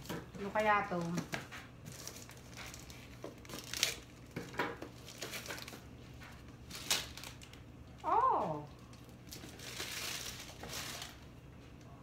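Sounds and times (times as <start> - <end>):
plastic bag crinkling: 0.0 - 11.3
scissors cutting plastic: 0.8 - 5.8.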